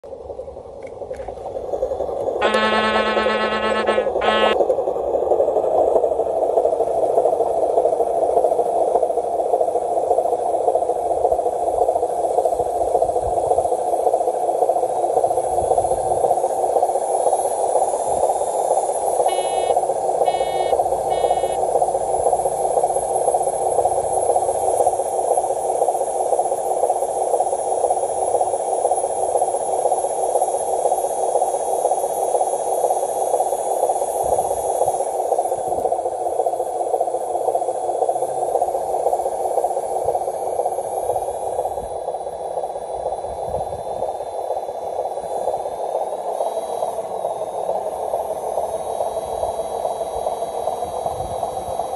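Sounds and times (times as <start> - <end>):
electric motor and gears whirring: 2.4 - 4.6, 19.2 - 23.2
short high beeps: 2.4 - 4.6, 19.3 - 21.6.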